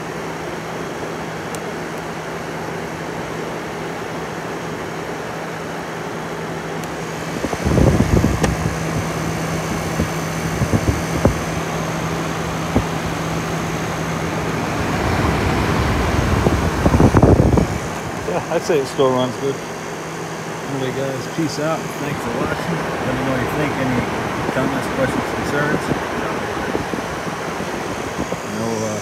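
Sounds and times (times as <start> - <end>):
air conditioner hum and fan rush: 0.0 - 29.0
gusty low rumbling: 7.0 - 18.8, 22.0 - 28.5.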